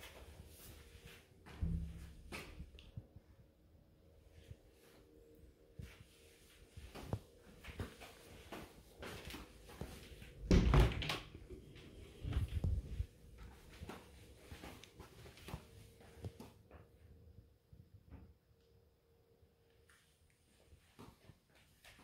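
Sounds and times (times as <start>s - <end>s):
soft footsteps: 0.0s - 3.4s, 4.2s - 10.5s, 11.5s - 17.0s.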